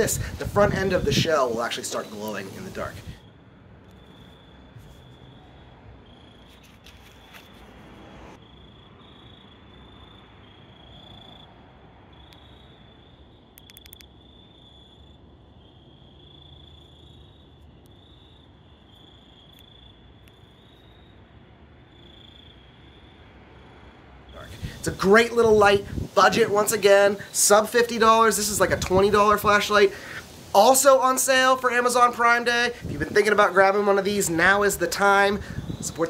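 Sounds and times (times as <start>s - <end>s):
crickets chirring: 0.0s - 36.0s
light clicks: 13.6s - 14.1s.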